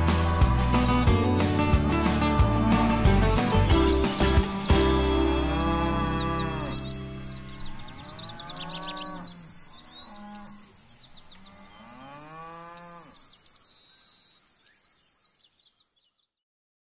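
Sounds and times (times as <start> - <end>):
small birds chirping: 0.0 - 16.4
cattle mooing: 4.9 - 10.6, 11.4 - 13.2.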